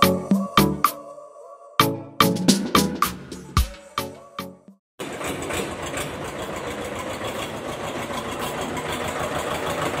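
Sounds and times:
tractor engine chugging: 0:05.0 - 0:10.0.

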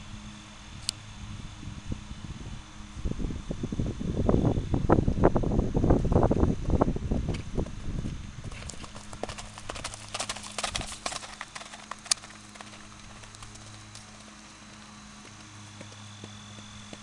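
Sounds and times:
horse hoofbeats: 0:08.4 - 0:17.0.

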